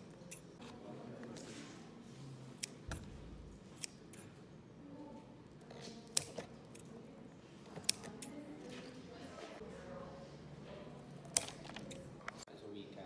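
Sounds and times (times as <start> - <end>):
scissors snipping: 0.0 - 0.6, 2.6 - 3.1, 3.8 - 4.4, 5.7 - 6.9, 7.6 - 8.4, 11.1 - 12.5.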